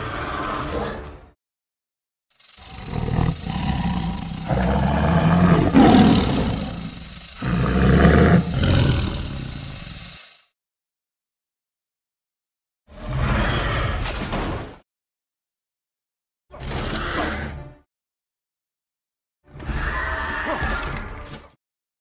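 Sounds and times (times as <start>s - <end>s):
deep monster roar: 2.4s - 10.5s.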